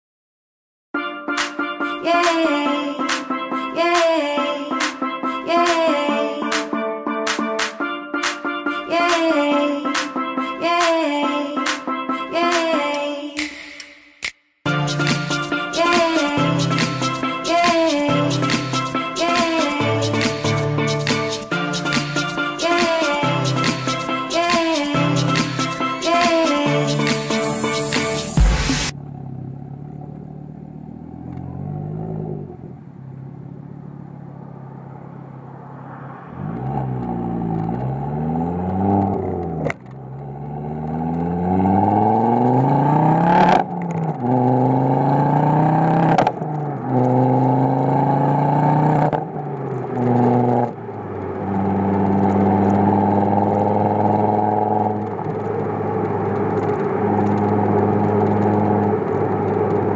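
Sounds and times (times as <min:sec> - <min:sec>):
car exhaust accelerating: 0:25.0 - 0:59.9
exhaust crack at upshifts: 0:28.0 - 0:59.9.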